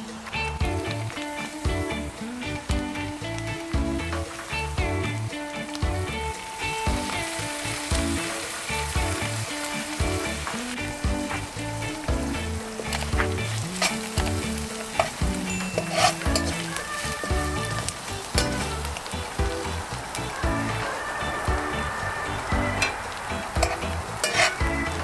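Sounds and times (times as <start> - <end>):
food sizzling in frying pan: 0.0 - 25.0
metal utensil scraping pan: 12.8 - 19.0, 22.8 - 25.0.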